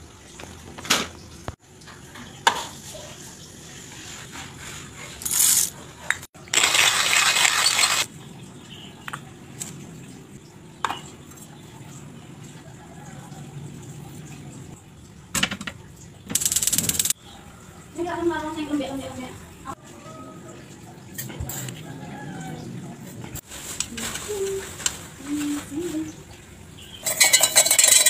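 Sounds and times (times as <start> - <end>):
manual coffee grinder crunching: 5.2 - 5.8, 6.4 - 8.1
gear clinking on counter: 27.0 - 28.0.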